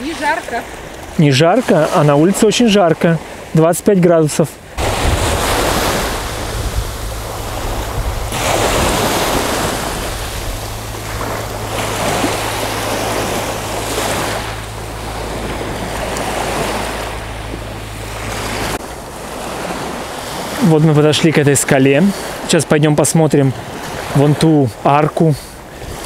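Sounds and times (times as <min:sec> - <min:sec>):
waves lapping on beach: 0:00.0 - 0:26.0
wind rumbling on microphone: 0:04.6 - 0:20.6, 0:25.6 - 0:26.0.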